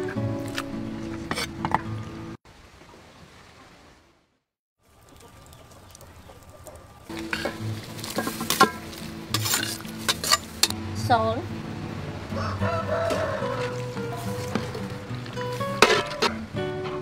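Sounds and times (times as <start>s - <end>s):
rooster crowing: 12.3s - 15.2s.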